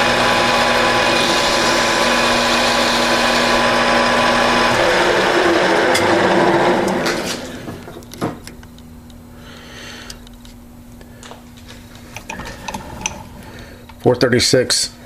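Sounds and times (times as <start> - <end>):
metal lathe spinning down: 0.0 - 7.9
low steady hum: 5.7 - 15.0.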